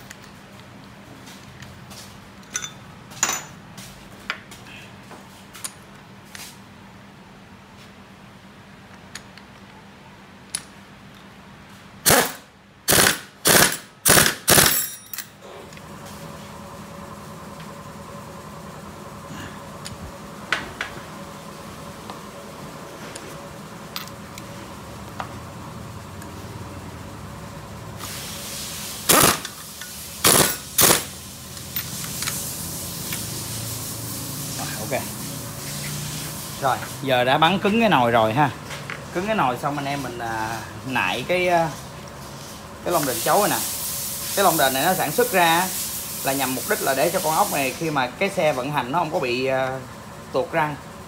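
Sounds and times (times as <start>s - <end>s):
impact wrench hammering: 12.1s - 15.2s, 29.1s - 29.6s, 30.2s - 31.2s.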